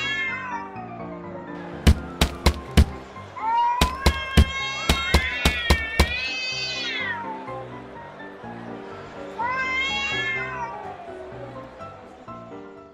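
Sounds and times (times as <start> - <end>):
cat yowling: 0.0 - 0.7, 3.4 - 7.4, 9.4 - 10.9.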